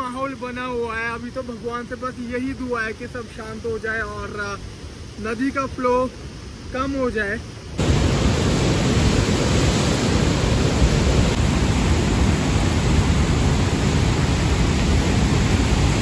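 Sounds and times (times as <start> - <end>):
river rushing: 0.0 - 16.0.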